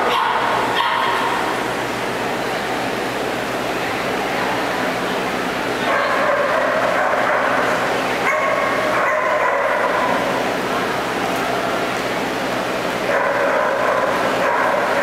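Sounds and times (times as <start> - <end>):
dog barking: 0.0 - 1.5, 5.8 - 10.2, 13.1 - 15.0
echoing arena noise: 0.0 - 15.0.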